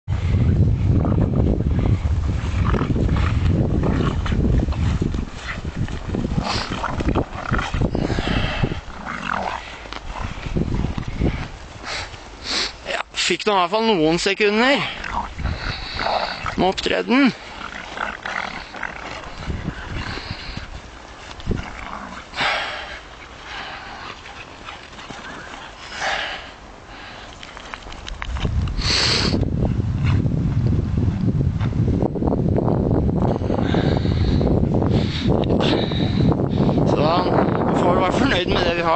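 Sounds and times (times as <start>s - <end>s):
dogs growling in play: 1.0s - 11.4s, 14.8s - 16.6s, 17.2s - 26.6s.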